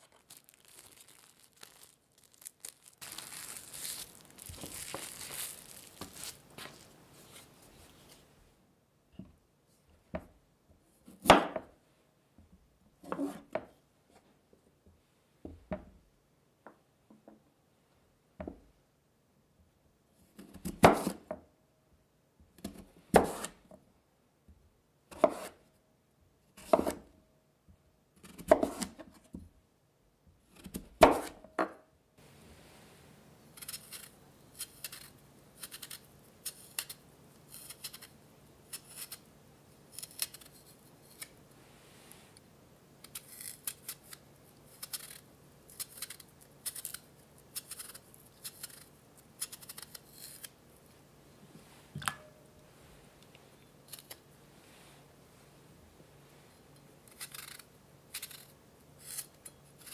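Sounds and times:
knife chopping on wooden board: 20.6 - 21.2, 23.2 - 23.5, 25.1 - 25.5, 26.6 - 27.0, 28.4 - 28.9, 31.0 - 31.4
peeler scraping skin: 57.1 - 59.9.

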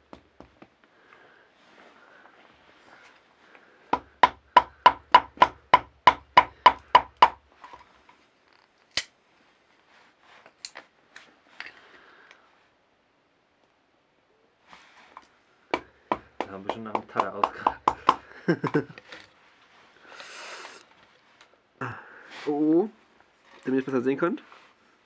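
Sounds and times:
light clicks of wood pieces: 10.4 - 12.4.

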